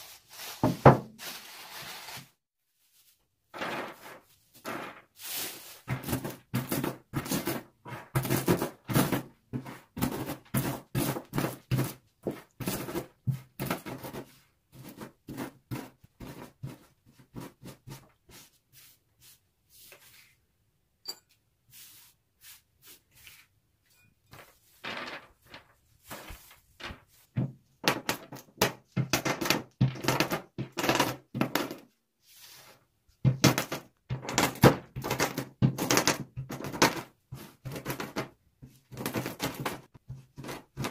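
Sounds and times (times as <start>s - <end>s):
rolling pin crushing nuts: 5.8s - 16.4s, 24.8s - 31.8s, 33.2s - 40.9s.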